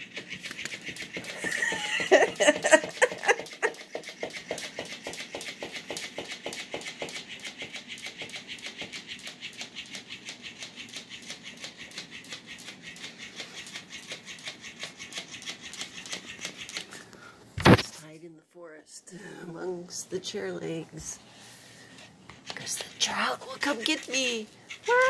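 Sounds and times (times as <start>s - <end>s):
cat toy tail flapping and clattering: 0.0s - 17.0s, 22.3s - 25.0s
squeaking toy joints: 0.0s - 17.0s, 22.3s - 25.0s.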